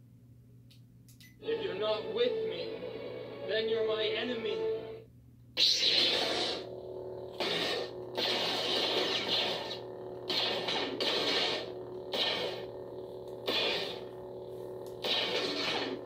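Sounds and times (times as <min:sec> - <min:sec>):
lightsaber hum: 0:05.6 - 0:16.0.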